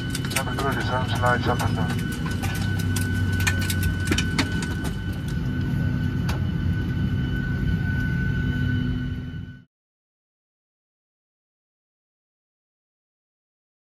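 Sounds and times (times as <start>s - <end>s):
clicks and knocks from passengers: 0.0s - 5.4s
aircraft cabin hum: 0.0s - 9.6s.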